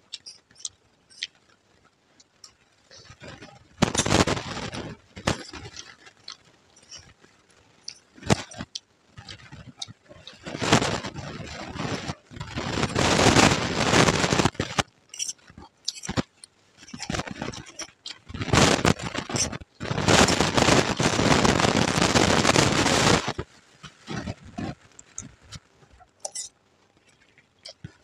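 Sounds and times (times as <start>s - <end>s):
crunchy food being chewed: 0.0s - 28.0s
spoon scraping steel plate: 15.1s - 16.2s, 26.2s - 26.5s.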